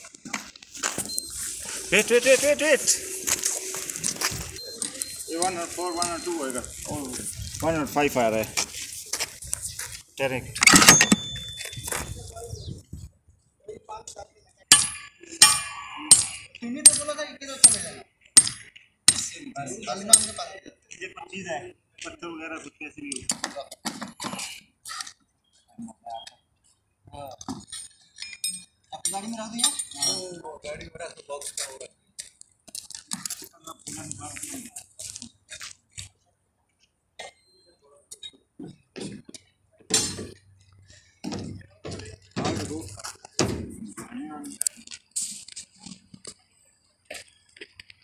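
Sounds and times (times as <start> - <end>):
faint high beep: 1.0 - 3.6, 4.4 - 7.0, 10.7 - 12.4
hammer striking steel pin: 14.7 - 17.8.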